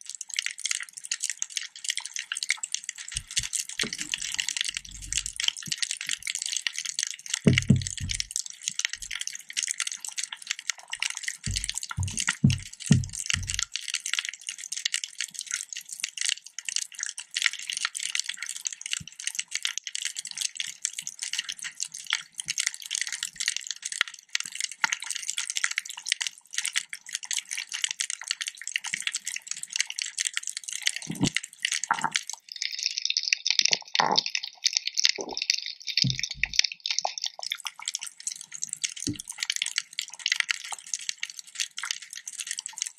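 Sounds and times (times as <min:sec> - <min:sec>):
underwater high crackling: 0:01.0 - 0:13.8, 0:30.3 - 0:41.5.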